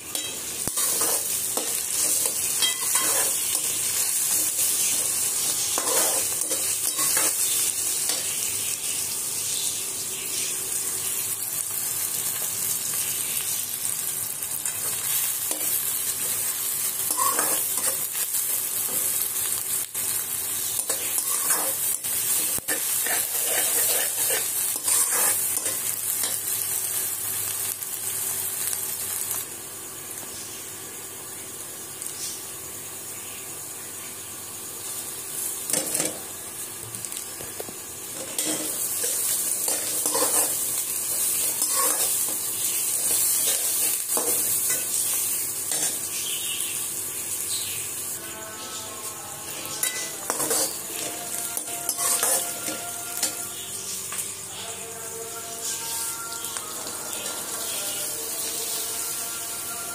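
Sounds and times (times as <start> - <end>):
onions sizzling in oil: 0.0 - 59.9
spatula scraping a wok: 0.1 - 8.5, 14.8 - 19.2, 20.6 - 26.4, 38.2 - 46.1, 49.8 - 53.6.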